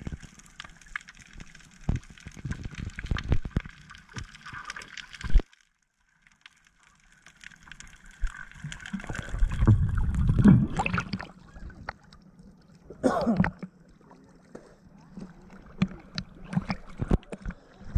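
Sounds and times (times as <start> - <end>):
water sloshing and gurgling: 0.0 - 17.9
low water churning: 7.9 - 17.9
water splash: 8.2 - 11.9.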